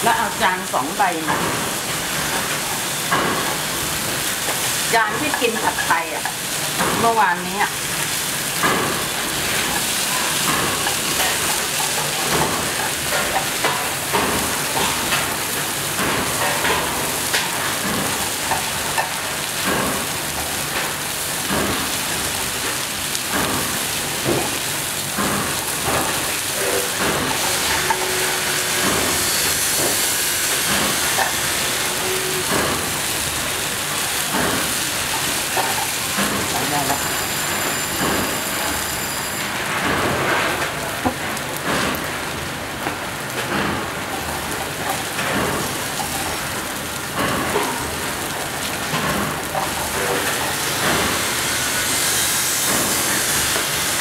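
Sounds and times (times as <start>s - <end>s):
noodles sizzling in a frying pan: 0.0s - 54.0s
spatula clacking and scraping pan: 8.1s - 15.3s.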